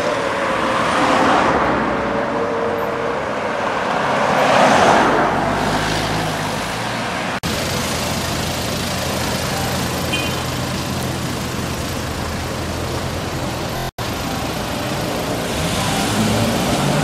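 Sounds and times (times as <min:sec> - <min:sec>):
street traffic: 0:00.0 - 0:17.0
vehicle passing close: 0:00.0 - 0:17.0
sports car engine idling: 0:07.4 - 0:17.0.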